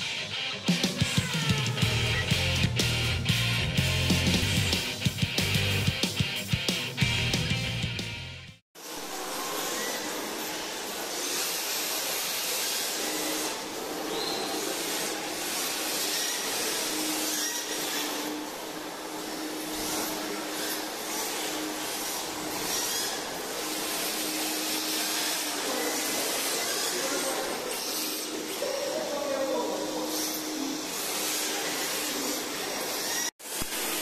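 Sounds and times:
electric motors whirring: 8.8 - 34.0
brief tyre squeaks: 14.1 - 14.6.

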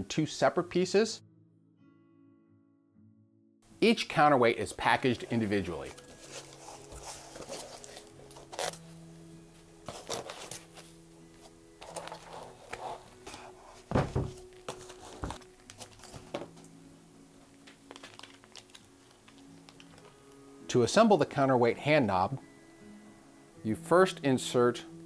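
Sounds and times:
plastic bag crinkling: 5.2 - 8.8, 14.8 - 16.6, 17.6 - 20.2
foam packing rubbing: 6.0 - 8.8, 11.8 - 15.4
knocks and thump: 13.9 - 14.4.

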